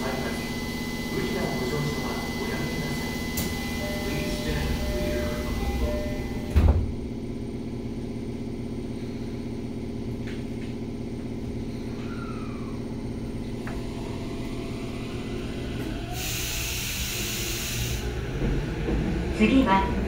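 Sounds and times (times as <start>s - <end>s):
train interior hum: 0.0s - 20.0s
loud hiss: 16.1s - 18.1s.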